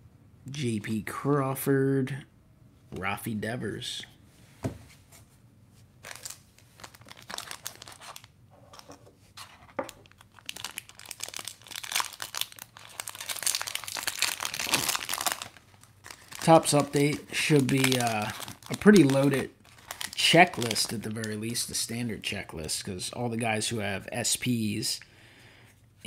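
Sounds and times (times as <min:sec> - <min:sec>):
foil wrapper crinkling and tearing: 0:06.0 - 0:08.3, 0:09.8 - 0:21.9.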